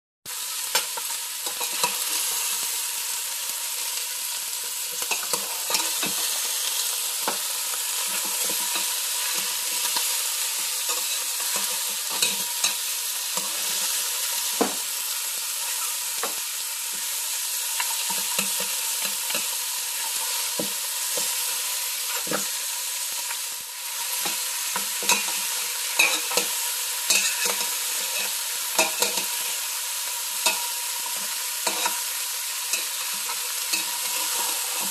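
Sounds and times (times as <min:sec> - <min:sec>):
bones sizzling in a pot: 0:00.3 - 0:34.9
metal spoon scraping a pot: 0:27.1 - 0:29.3, 0:32.7 - 0:34.9.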